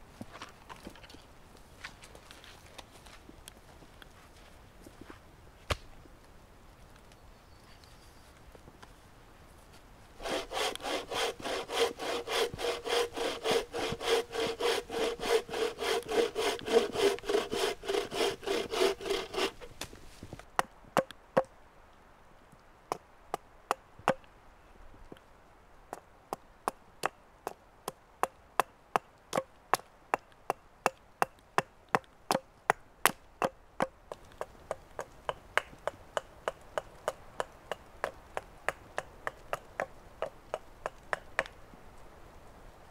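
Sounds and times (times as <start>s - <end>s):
saw cutting through log: 10.2s - 19.7s.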